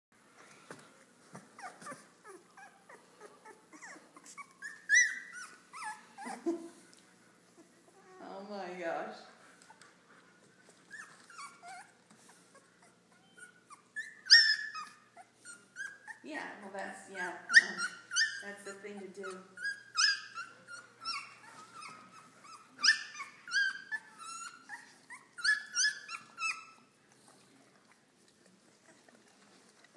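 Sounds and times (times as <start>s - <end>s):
puppies squeaking and whimpering: 0.5s - 6.9s, 10.7s - 16.2s, 17.4s - 27.5s.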